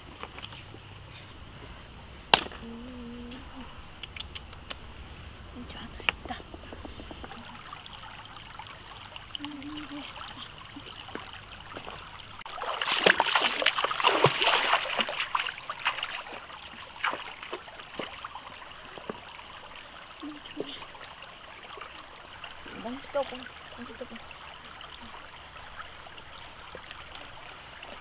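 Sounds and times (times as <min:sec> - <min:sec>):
stream trickling over rocks: 0:00.0 - 0:28.0
loud water splashing: 0:07.3 - 0:19.4.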